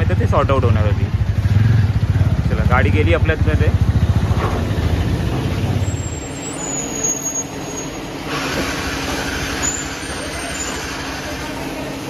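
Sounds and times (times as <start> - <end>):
motorcycle engine at low revs: 0.0 - 5.9
workshop machinery hiss: 8.2 - 11.9.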